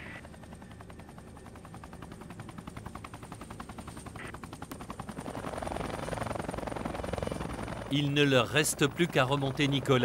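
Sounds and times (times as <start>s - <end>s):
helicopter rotor chop: 0.1s - 10.0s.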